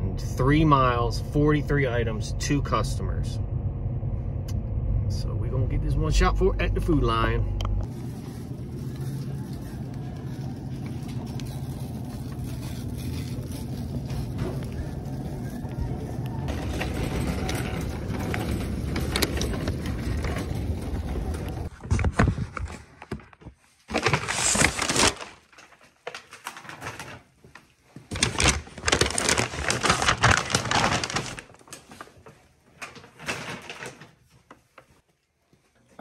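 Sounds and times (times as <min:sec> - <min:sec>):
steady rumble: 0:00.0 - 0:21.7
paper bags crinkling: 0:07.8 - 0:27.3, 0:28.1 - 0:34.6.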